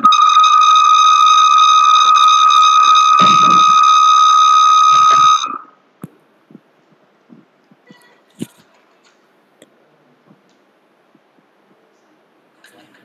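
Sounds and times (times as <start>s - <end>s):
high-pitched feedback whistle: 0.0s - 5.7s.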